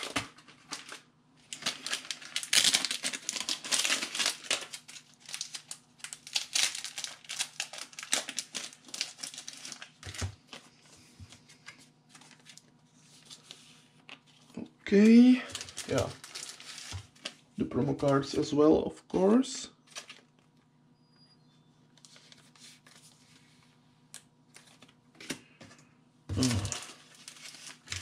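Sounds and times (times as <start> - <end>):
plastic crinkling and rustling: 0.0 - 17.4, 19.8 - 20.6, 26.3 - 28.0.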